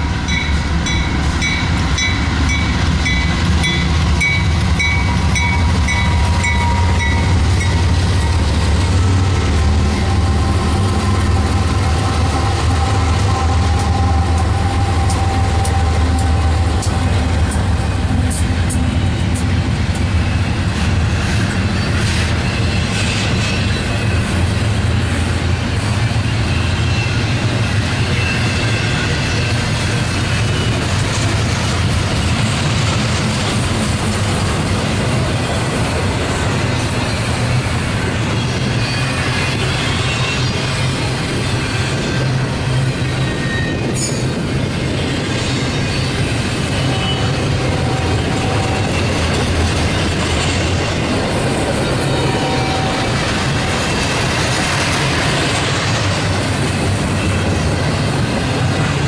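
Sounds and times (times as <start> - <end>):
train wheels rumbling on rail: 0.0 - 59.0
high wheel squeals: 3.6 - 17.3, 25.9 - 30.9, 36.8 - 44.4, 45.4 - 53.5.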